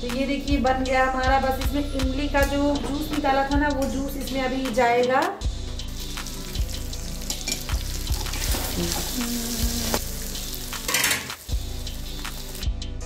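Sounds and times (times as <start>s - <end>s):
curry sizzling in a pan: 5.8s - 12.7s
ladle clinking against pan: 10.9s - 11.3s.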